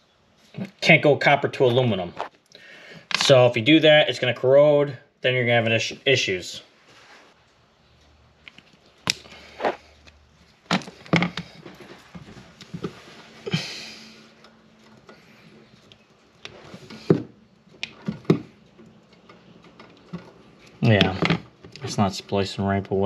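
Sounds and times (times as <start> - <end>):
pliers twisting wires: 8.4 - 11.7.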